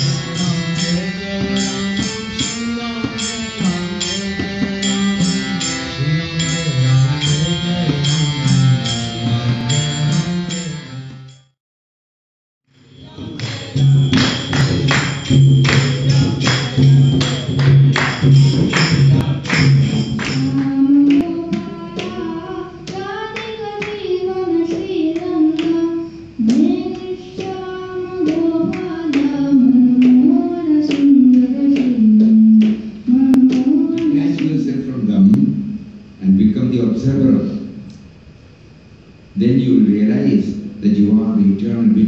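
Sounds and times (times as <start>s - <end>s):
music with drone and beat: 0.0s - 11.4s, 13.0s - 20.6s
child singing into microphone: 20.4s - 34.7s.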